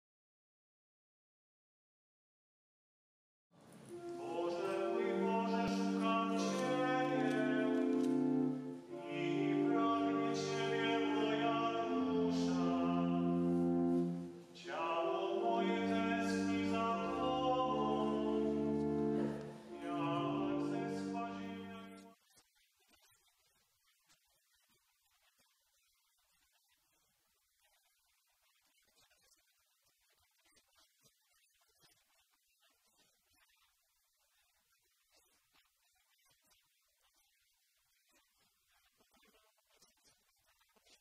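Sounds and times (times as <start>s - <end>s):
solemn choral music: 3.8s - 22.1s.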